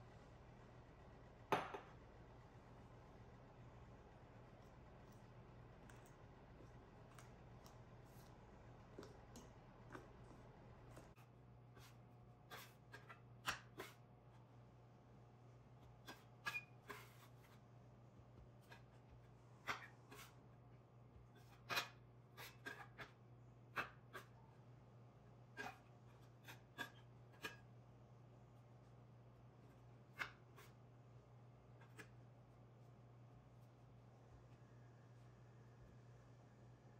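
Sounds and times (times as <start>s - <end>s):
faint low hum: 0.0s - 36.9s
metal scraper on stone countertop: 16.0s - 17.3s, 21.4s - 23.1s, 25.5s - 27.6s.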